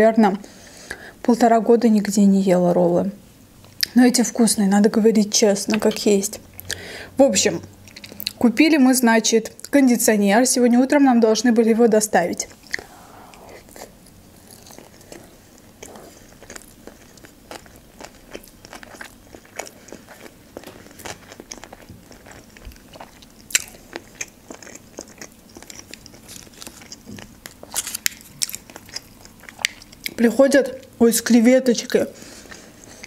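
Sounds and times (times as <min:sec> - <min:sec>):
close chewing: 0:07.8 - 0:08.4, 0:14.4 - 0:30.2.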